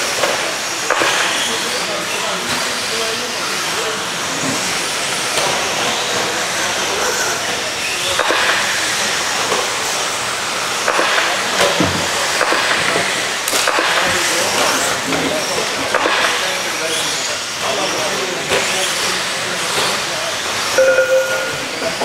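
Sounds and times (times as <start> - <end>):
rc truck motors whining: 14.3 - 20.9.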